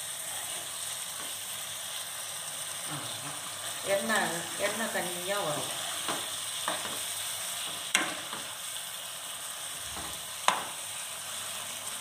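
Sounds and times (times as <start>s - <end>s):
food sizzling in a pan: 0.0s - 12.0s
spatula knocking on pan: 10.0s - 10.8s.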